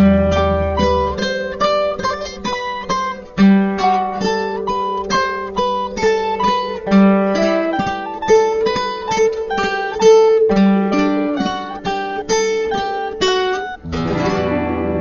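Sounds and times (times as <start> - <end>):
low bass note: 0.0 - 1.9
plucked string melody: 0.0 - 15.0.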